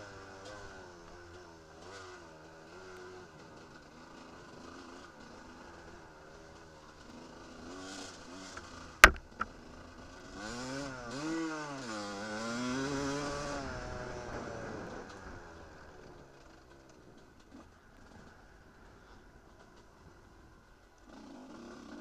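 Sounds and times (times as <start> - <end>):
sharp knock: 9.0 - 9.5.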